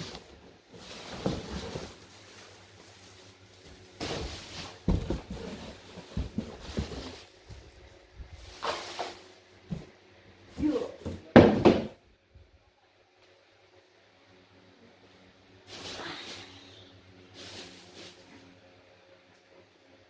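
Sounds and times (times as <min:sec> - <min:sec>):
cardboard packaging handled: 0:00.0 - 0:09.2
plastic bags rustling: 0:00.0 - 0:09.4, 0:15.7 - 0:18.6
knocks and thumps: 0:04.8 - 0:07.1.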